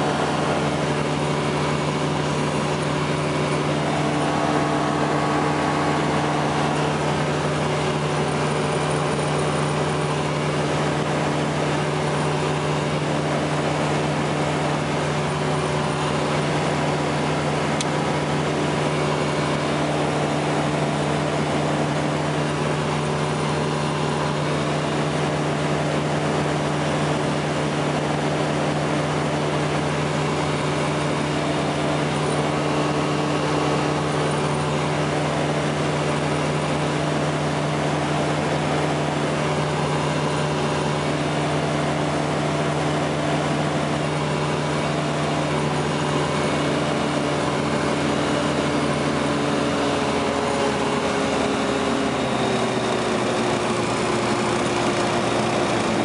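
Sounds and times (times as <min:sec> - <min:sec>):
air rushing: 0:00.0 - 0:08.9
ultralight engine and propeller droning: 0:00.0 - 0:56.0.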